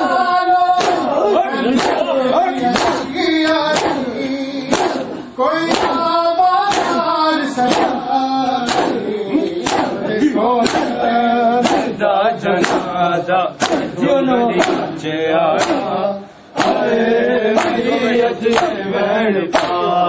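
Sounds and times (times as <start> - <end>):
men chanting a lament: 0.0 - 20.0
hands beating chests: 0.8 - 11.0, 11.6 - 12.0, 12.6 - 12.9, 13.6 - 14.9, 15.6 - 16.0, 16.6 - 16.9, 17.6 - 17.9, 18.5 - 18.8, 19.5 - 19.8.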